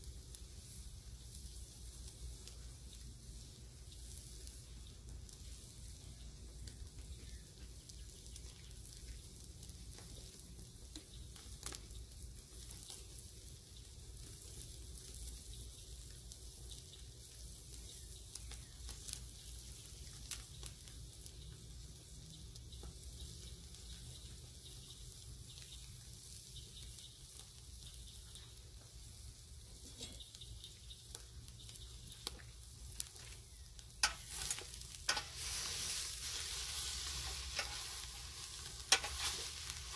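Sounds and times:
fish sizzling on a grill: 0.0 - 39.9
pops and crackles: 6.1 - 13.4, 17.8 - 21.5, 29.8 - 39.9.

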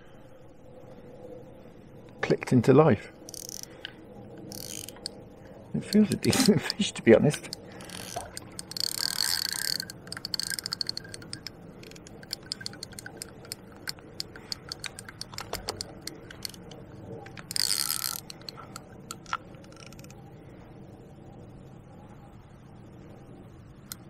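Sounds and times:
fishing reel clicking: 3.3 - 3.7, 4.4 - 5.2, 5.8 - 20.2.

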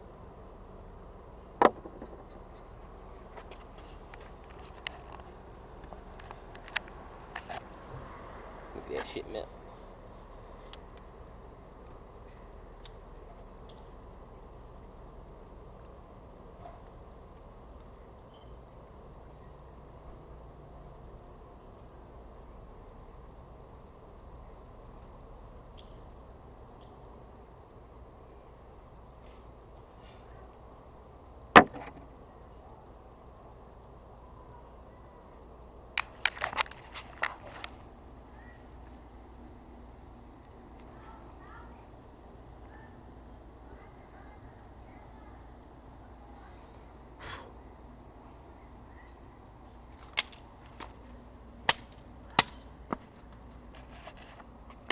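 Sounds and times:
crickets trilling: 0.0 - 54.9.

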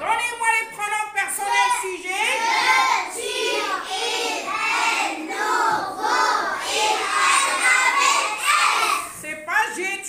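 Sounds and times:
children chanting in chorus: 1.5 - 9.2.

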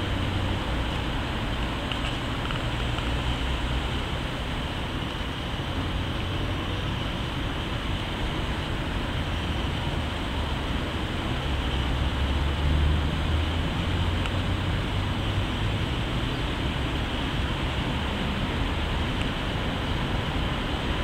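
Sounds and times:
steady background hiss: 0.0 - 21.0.

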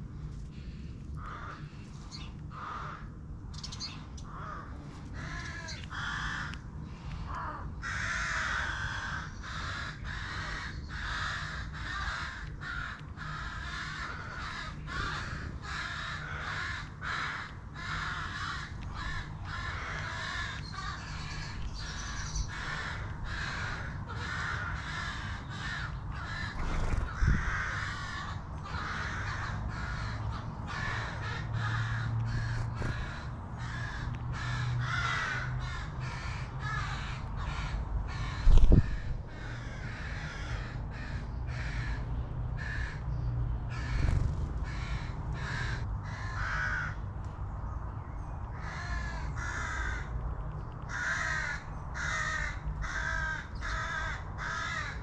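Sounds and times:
steady low hum: 0.0 - 55.0
crows cawing: 0.2 - 47.1, 48.5 - 55.0.

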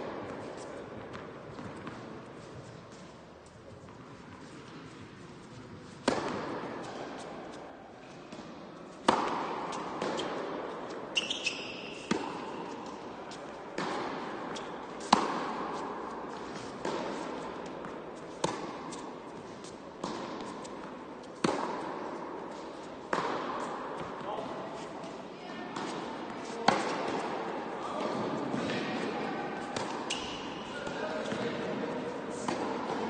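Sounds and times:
tennis ball bouncing: 0.1 - 3.1, 5.8 - 7.6, 8.3 - 33.0
racket striking tennis ball: 5.8 - 7.6, 8.2 - 33.0
shoe squeak: 11.1 - 12.1, 30.1 - 30.5.

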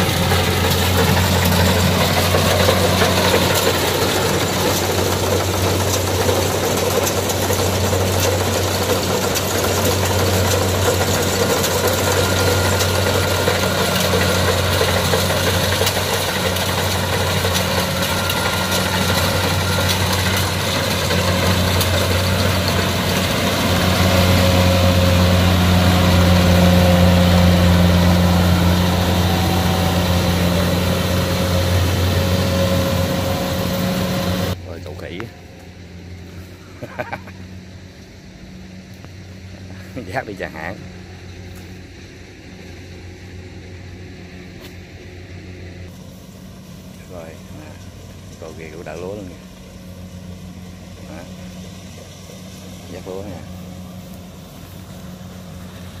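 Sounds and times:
mechanical threshing noise: 0.0 - 35.2
combine harvester engine drone: 0.0 - 56.0.

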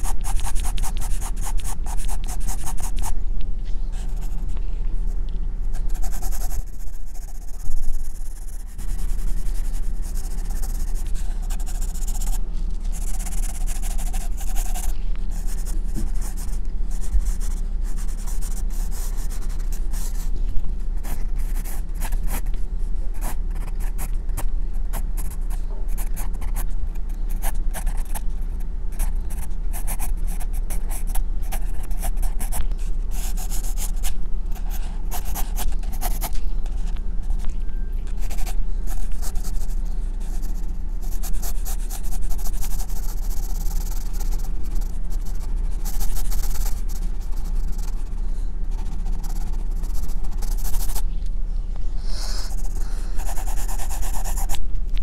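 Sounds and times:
pencil scratching on paper: 0.0 - 3.2, 5.8 - 20.3, 21.0 - 22.5, 29.0 - 36.4, 38.2 - 51.0, 52.2 - 54.6
steady low hum: 0.0 - 55.0.

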